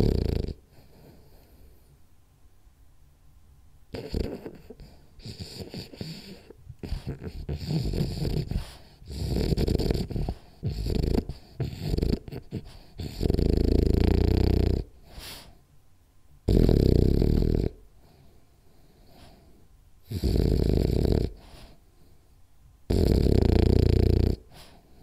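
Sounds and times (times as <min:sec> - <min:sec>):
dog snoring: 0:00.0 - 0:01.9, 0:03.9 - 0:15.6, 0:16.4 - 0:21.8, 0:22.9 - 0:25.0.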